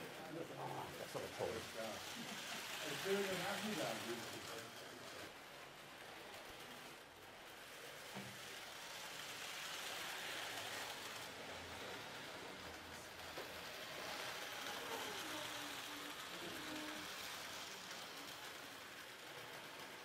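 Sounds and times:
toy train rattling on track: 0:00.0 - 0:20.0.

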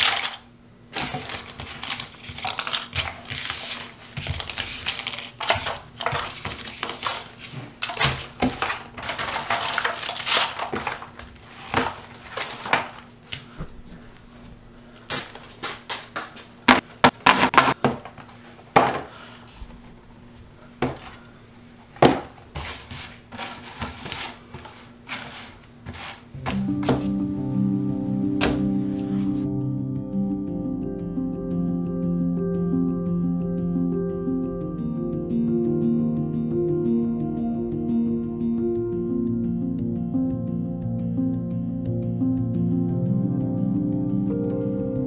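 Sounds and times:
puzzle pieces rustling and clattering: 0:00.0 - 0:13.1
low steady hum: 0:17.7 - 0:45.0.

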